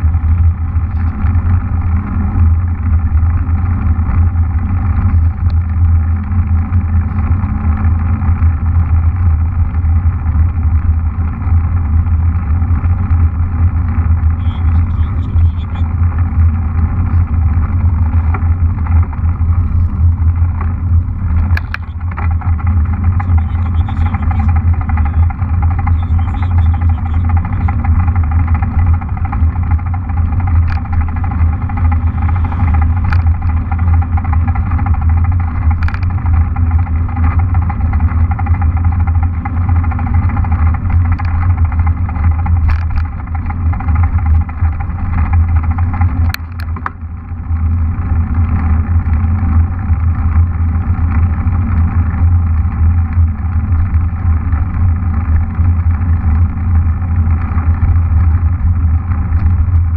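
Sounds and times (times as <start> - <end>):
bike rolling on tarmac: 0.0 - 59.9
sharp clicks: 21.3 - 28.0.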